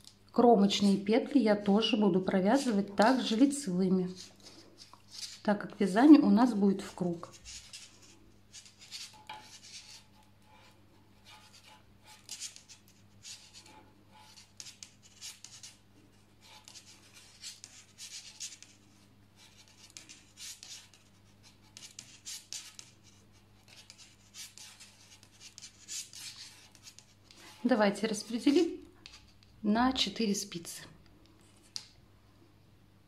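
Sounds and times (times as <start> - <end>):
knitting needles clicking and scraping: 0.0 - 1.0, 23.8 - 29.6, 31.0 - 32.0.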